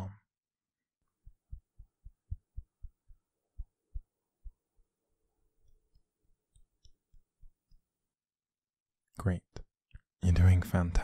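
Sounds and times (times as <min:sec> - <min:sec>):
soft dull low thumps: 0:01.2 - 0:05.0, 0:05.6 - 0:07.9.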